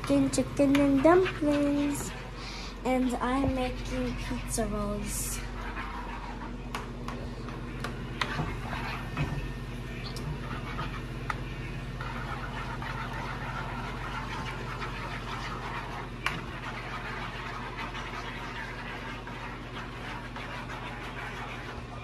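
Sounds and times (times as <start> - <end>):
low stove hum: 0.0 - 22.0.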